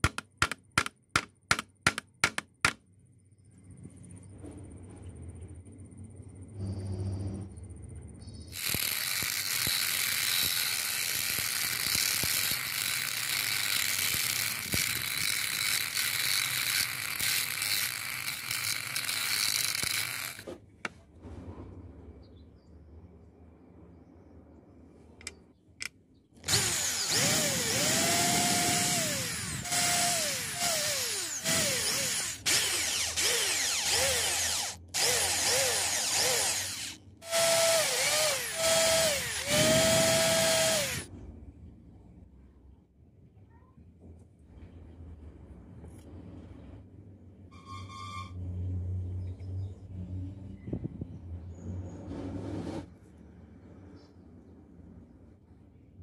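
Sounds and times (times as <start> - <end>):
cordless drill boring into plastic: 8.6 - 20.5, 26.4 - 41.1
loud steady power tool noise: 8.6 - 20.5, 26.5 - 41.1.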